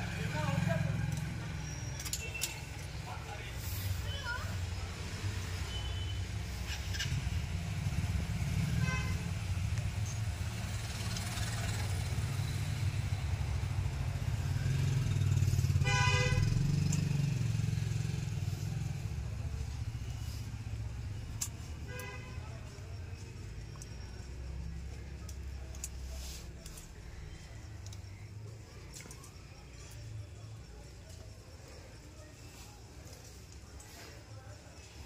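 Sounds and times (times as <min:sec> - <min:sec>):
vehicle horn honks: 0:08.7 - 0:09.3, 0:15.8 - 0:16.6.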